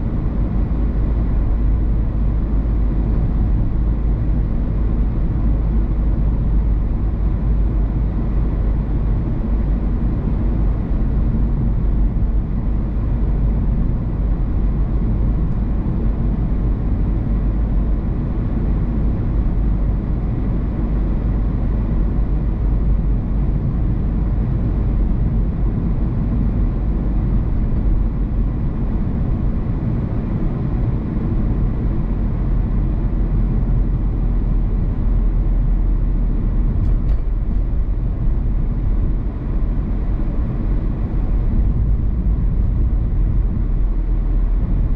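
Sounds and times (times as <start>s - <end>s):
car tyre and engine rumble: 0.0s - 44.9s.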